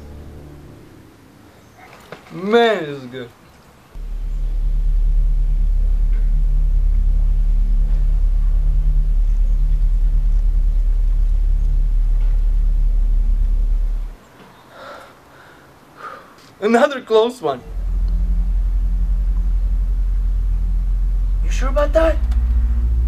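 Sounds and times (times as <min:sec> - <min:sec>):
low rumbling drone: 0:00.0 - 0:01.5, 0:04.0 - 0:14.2, 0:17.6 - 0:23.0.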